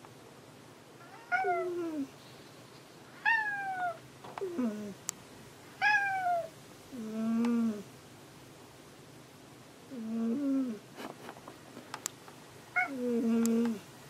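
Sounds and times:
cat meowing: 1.0s - 2.1s, 3.2s - 4.0s, 5.8s - 6.5s.

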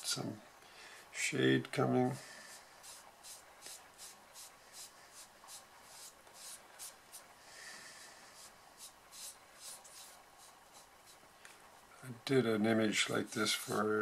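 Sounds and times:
pastel tool scratching paper: 2.8s - 7.2s, 8.4s - 11.2s, 12.9s - 13.9s.

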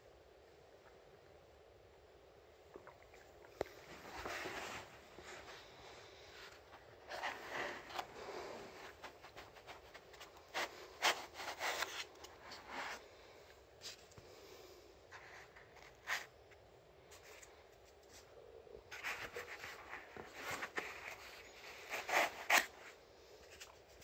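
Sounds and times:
foam and cardboard scraping: 7.0s - 13.0s, 18.9s - 23.0s.

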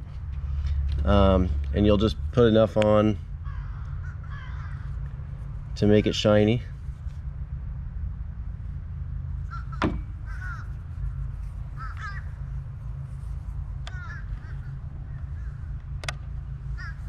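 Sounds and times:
low rumble: 0.0s - 17.0s
crow cawing: 3.4s - 5.0s, 9.5s - 10.8s, 11.8s - 12.5s, 13.8s - 15.8s, 16.7s - 17.0s
sharp clicks: 15.8s - 16.3s.

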